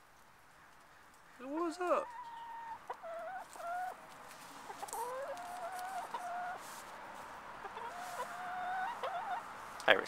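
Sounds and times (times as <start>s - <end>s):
hen calling: 1.3s - 4.1s, 4.7s - 6.7s, 7.6s - 9.5s.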